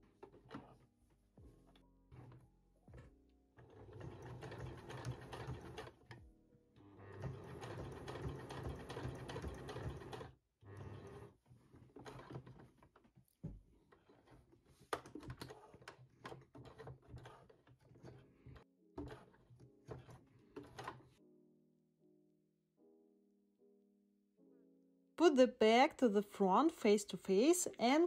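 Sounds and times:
sewing machine stitching: 3.6s - 6.2s, 6.9s - 12.8s.

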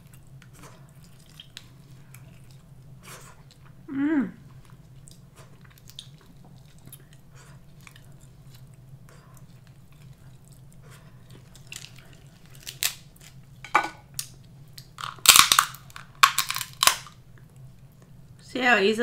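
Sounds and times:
chewing and mouth smacks: 0.0s - 3.8s, 4.6s - 13.4s
crab shell cracking: 11.5s - 13.4s, 14.1s - 17.2s.

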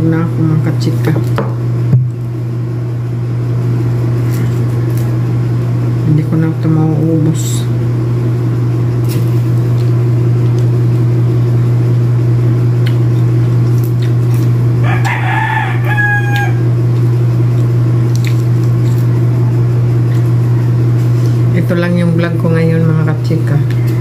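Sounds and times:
steady low hum: 0.0s - 24.0s
rooster crowing: 14.8s - 16.8s.

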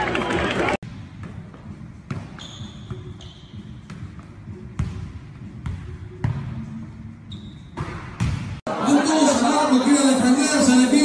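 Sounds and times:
ball thudding on gym floor: 7.8s - 8.6s.

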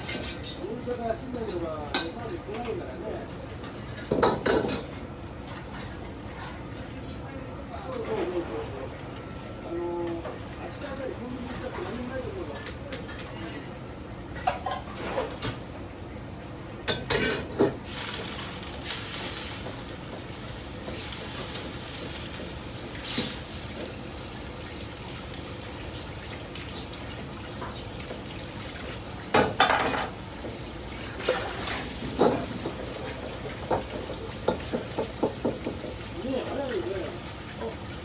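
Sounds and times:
tap water running into a wok: 16.8s - 38.0s.

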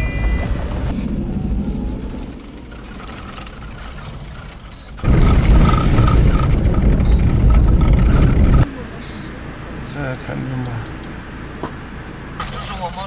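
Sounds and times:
loud deep rumble: 0.0s - 8.8s
minibus engine and road noise: 0.0s - 13.0s.

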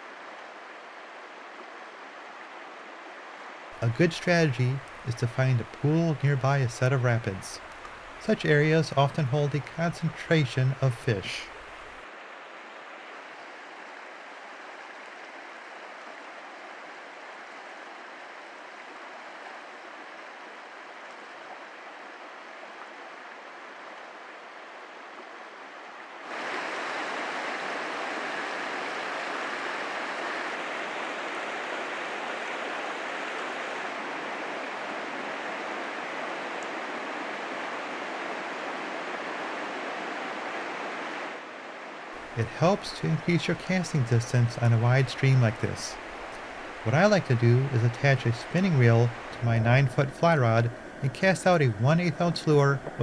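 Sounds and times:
river rapids rushing over rocks: 26.2s - 41.2s.

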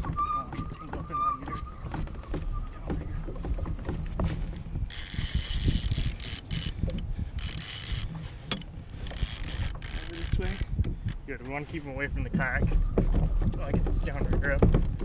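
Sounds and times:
low water and wind rumble: 0.0s - 15.0s
fishing reel clicker buzzing: 4.9s - 11.2s.

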